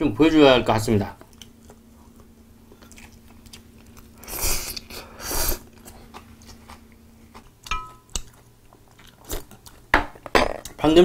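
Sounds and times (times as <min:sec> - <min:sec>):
close chewing and biting: 0:01.3 - 0:09.9.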